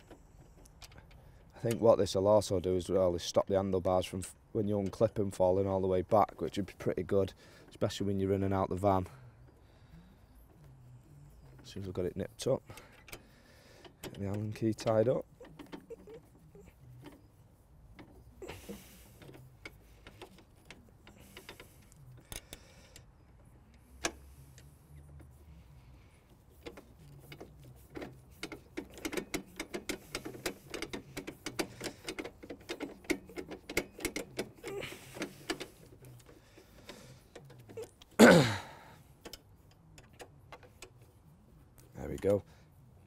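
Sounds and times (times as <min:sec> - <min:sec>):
allen key clicking on bolts: 0:00.0 - 0:02.0, 0:12.5 - 0:17.3, 0:17.9 - 0:24.7, 0:26.6 - 0:41.0.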